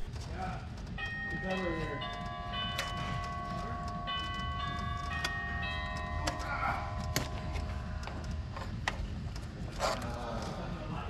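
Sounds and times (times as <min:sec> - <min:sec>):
hand tools knocking engine parts: 0:00.0 - 0:10.0
steady low rumble: 0:00.0 - 0:11.0
soft music with held chords: 0:00.1 - 0:11.0.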